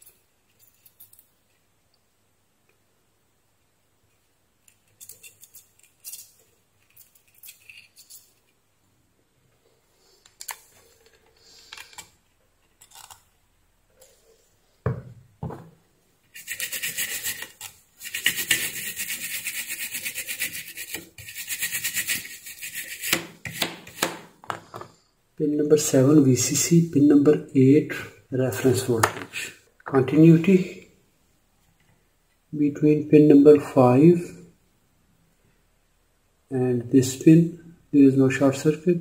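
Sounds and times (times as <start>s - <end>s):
stiff brush scrubbing circuit board: 16.3s - 24.0s.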